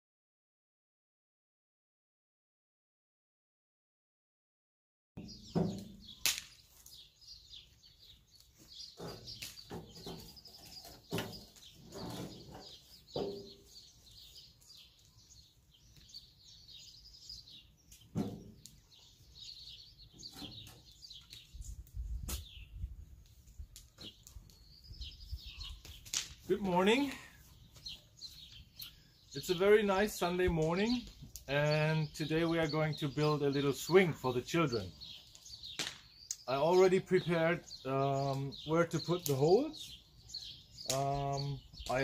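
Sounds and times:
songbirds chirping: 5.2s - 42.0s
metal wheelbarrow and spade clatter: 9.0s - 13.6s.

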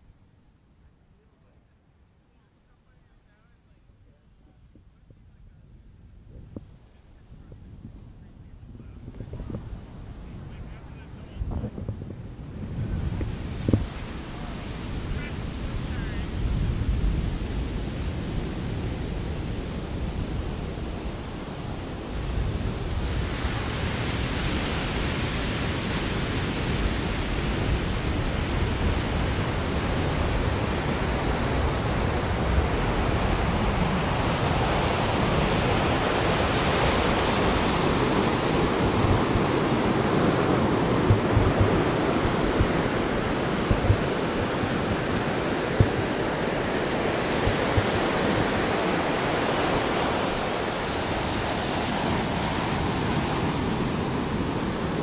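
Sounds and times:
ocean surf rushing: 12.3s - 55.0s.

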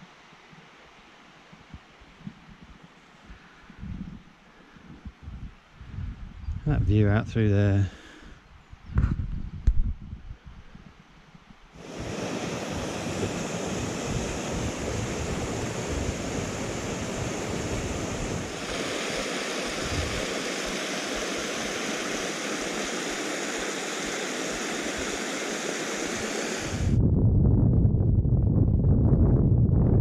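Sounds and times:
stream rushing over rocks: 11.8s - 27.0s.

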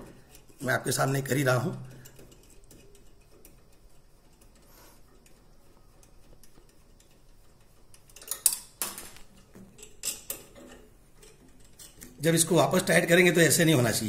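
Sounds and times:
small parts clicking and clinking: 1.8s - 12.2s.

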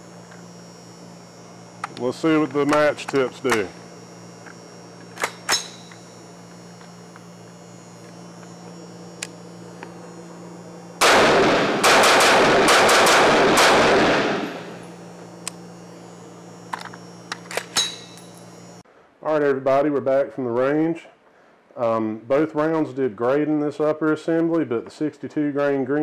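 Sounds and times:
rifle firing rapid shots: 11.0s - 14.8s.

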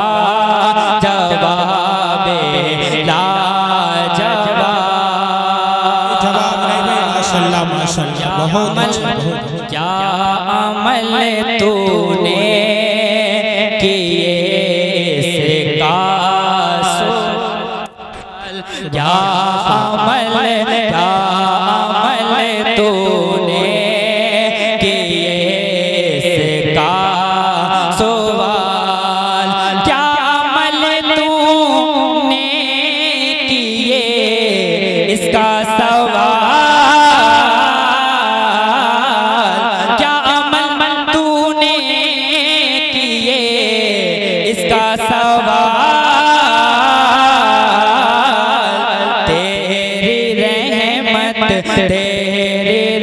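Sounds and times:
person singing melismatically: 0.1s - 53.0s.

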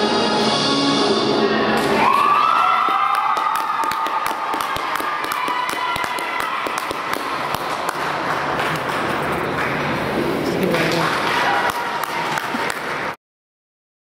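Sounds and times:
audience clapping: 2.0s - 13.2s.

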